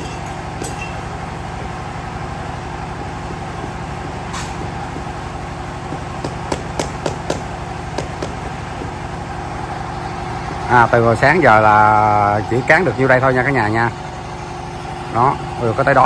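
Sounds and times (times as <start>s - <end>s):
motor humming: 0.0s - 15.8s
rubber mallet knocking tile: 5.9s - 9.0s.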